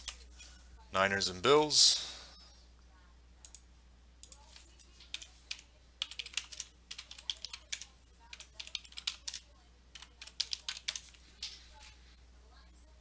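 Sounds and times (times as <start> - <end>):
keyboard typing: 4.2 - 11.9.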